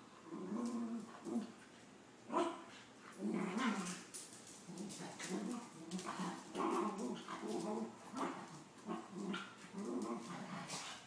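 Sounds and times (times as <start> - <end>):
dogs growling: 0.2 - 1.6, 2.3 - 11.0.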